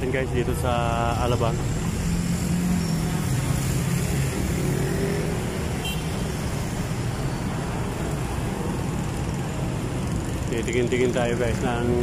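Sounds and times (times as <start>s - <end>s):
motorcycles passing: 0.0s - 12.0s
road noise: 0.0s - 12.0s.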